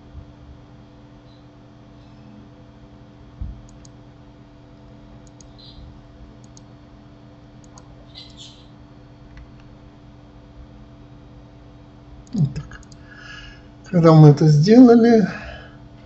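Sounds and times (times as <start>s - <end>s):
steady low hum: 0.0s - 16.0s
computer mouse clicks: 3.6s - 4.0s, 5.2s - 5.8s, 6.4s - 6.7s, 7.6s - 8.5s, 12.2s - 13.0s.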